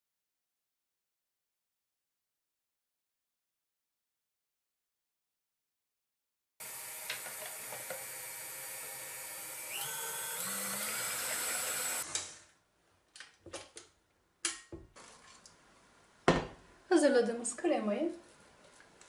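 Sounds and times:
stand mixer motor whining: 6.6s - 12.3s.

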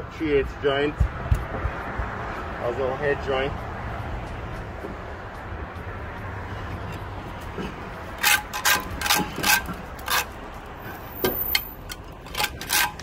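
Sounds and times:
trowel scraping mortar onto stone: 8.2s - 11.7s, 12.3s - 13.0s.

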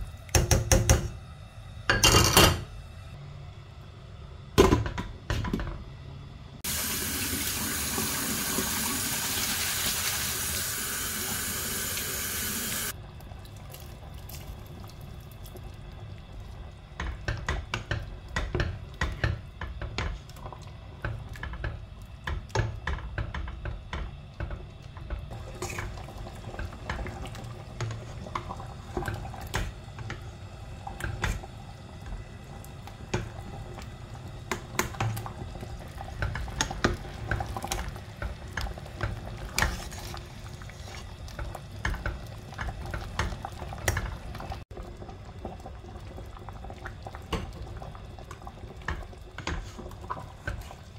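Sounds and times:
stew bubbling: 24.7s - 50.9s
spatula scraping pot: 39.5s - 41.1s.

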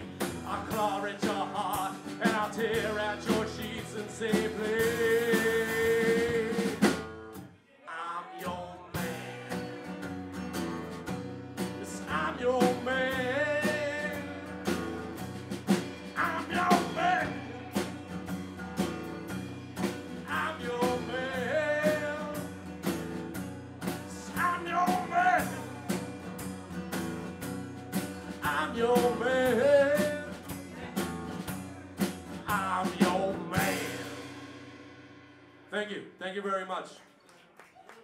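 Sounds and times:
man singing: 0.0s - 6.9s, 7.7s - 10.1s, 11.8s - 14.8s, 16.1s - 18.2s, 20.2s - 22.5s, 24.0s - 26.0s, 28.4s - 31.1s, 32.4s - 34.2s
strummed acoustic guitar: 0.0s - 7.5s, 8.9s - 35.6s
drums: 0.0s - 7.6s, 8.4s - 36.0s.

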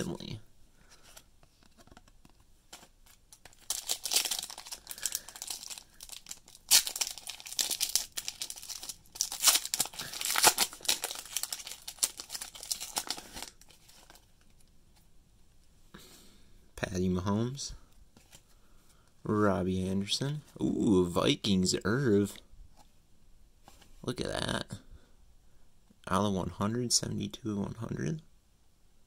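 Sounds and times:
foil wrapper tearing and crinkling: 3.1s - 14.2s.

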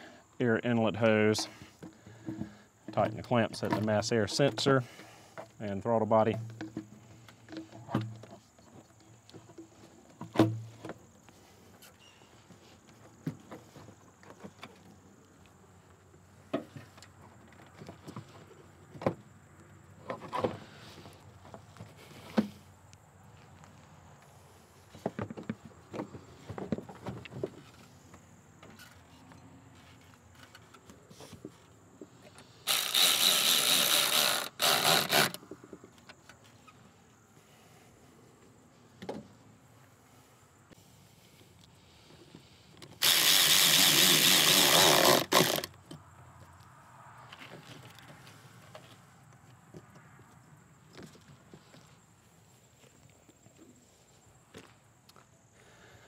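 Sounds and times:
plastic hose clicks and knocks: 7.5s - 8.4s
cordless power tool running: 32.7s - 35.4s, 43.0s - 45.7s.

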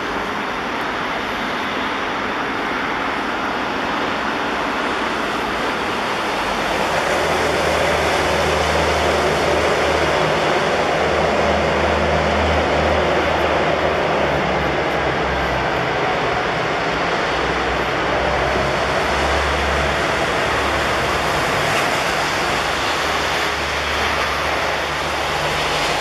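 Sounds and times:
deeper jet engine hum: 0.0s - 26.0s
jet engines rushing hiss: 0.0s - 26.0s.

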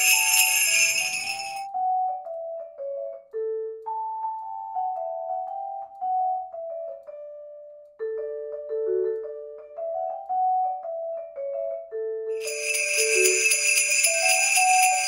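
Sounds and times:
mallet-like melody: 6.2s - 15.0s.

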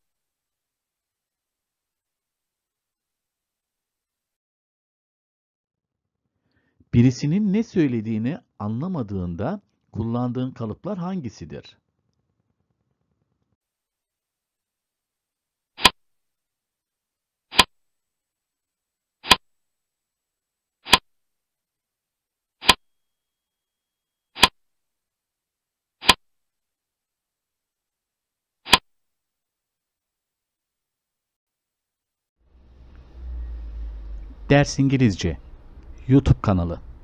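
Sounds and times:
short sharp clicks: 17.5s - 17.7s, 19.2s - 19.4s, 20.8s - 21.0s, 22.6s - 22.8s, 24.4s - 24.6s, 26.0s - 26.2s.

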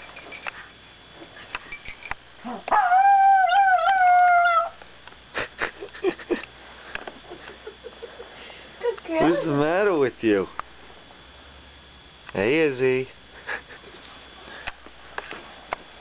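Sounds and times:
dog whining: 2.4s - 4.8s.

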